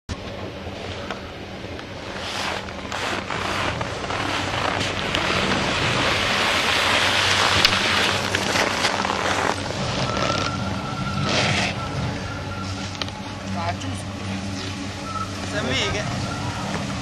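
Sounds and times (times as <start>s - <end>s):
sliding over packed snow: 2.0s - 11.8s.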